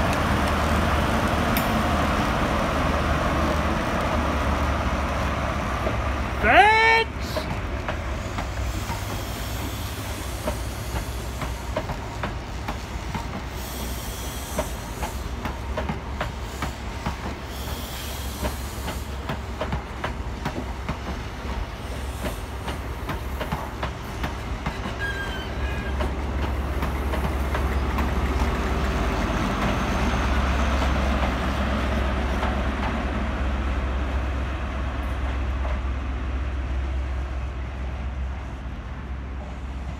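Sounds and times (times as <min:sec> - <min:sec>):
train coaches clattering past: 0:00.0 - 0:33.7
wheel squeal: 0:24.7 - 0:26.1.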